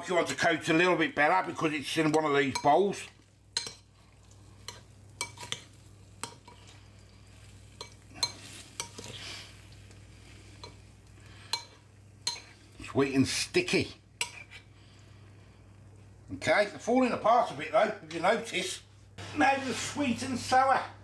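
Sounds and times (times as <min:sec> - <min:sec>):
wet stirring in sauce: 0:01.5 - 0:16.3
spoon clinking against bowl: 0:02.1 - 0:02.8, 0:03.6 - 0:03.9, 0:04.6 - 0:06.7, 0:07.8 - 0:09.1, 0:11.5 - 0:12.6.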